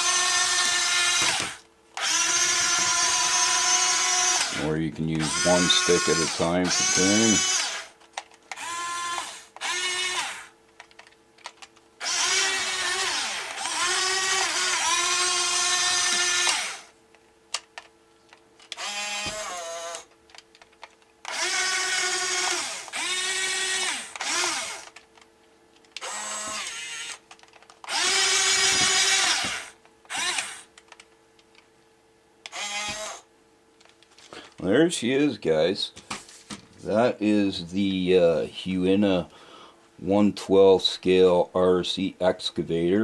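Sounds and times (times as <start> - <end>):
small electric motors whining: 0.0 - 17.0, 18.7 - 20.4, 21.2 - 25.2, 26.0 - 31.0, 32.5 - 33.3.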